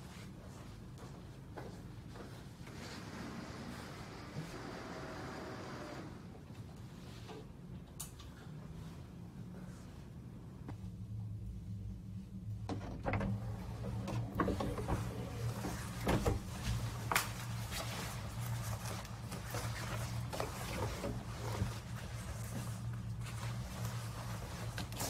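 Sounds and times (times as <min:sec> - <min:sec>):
steady low hum: 0:00.0 - 0:25.0
clothes rustling: 0:14.2 - 0:25.0.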